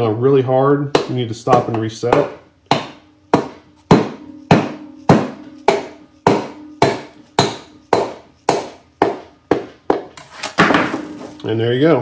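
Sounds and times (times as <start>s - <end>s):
hammer tapping on metal piston: 1.0s - 10.2s.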